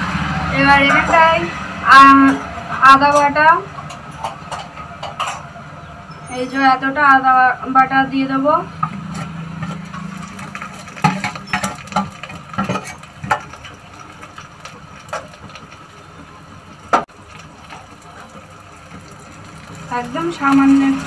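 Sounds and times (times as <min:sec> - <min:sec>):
metal spatula scraping iron pan: 0:08.8 - 0:13.1.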